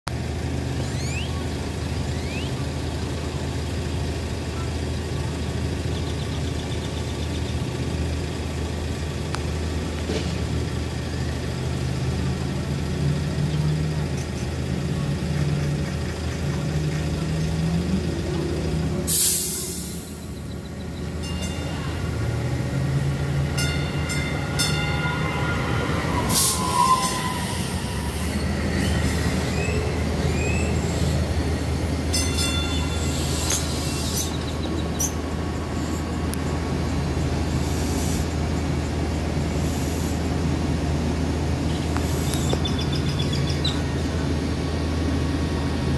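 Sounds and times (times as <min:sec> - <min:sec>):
light rail train running hum: 0:00.1 - 0:45.9
train wheel squeal: 0:19.2 - 0:31.3, 0:32.2 - 0:36.2.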